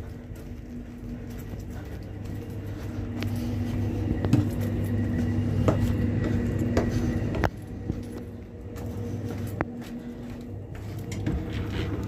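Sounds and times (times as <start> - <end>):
footsteps on stairs and floor: 0.0 - 12.0
train carriage hum: 0.0 - 12.0.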